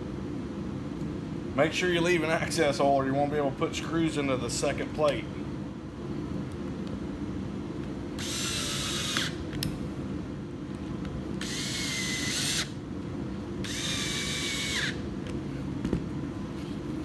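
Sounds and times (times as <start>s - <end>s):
cordless drill driving screws: 8.2s - 9.4s, 11.4s - 12.7s, 13.6s - 15.0s.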